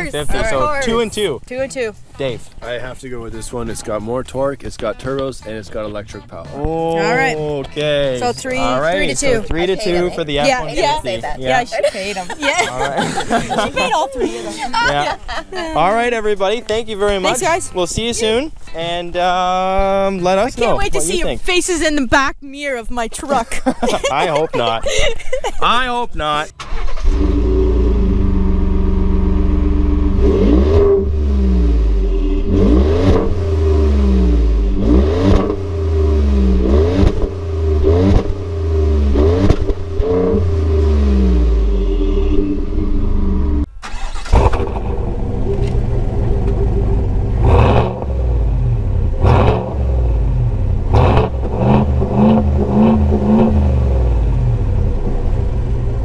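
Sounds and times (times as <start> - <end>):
vsix engine idling and blipped: 26.2 - 56.0
pickup truck engine revving: 26.6 - 56.0
veight engine idling and revving: 26.6 - 56.0.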